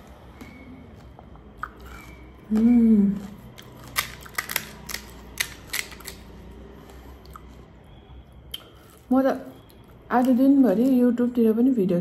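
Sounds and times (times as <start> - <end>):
crisp shell cracking: 3.5 - 6.3.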